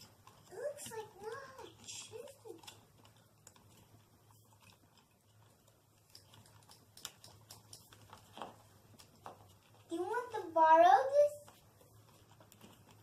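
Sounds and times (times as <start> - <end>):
wires clicking and rustling: 0.0 - 13.0.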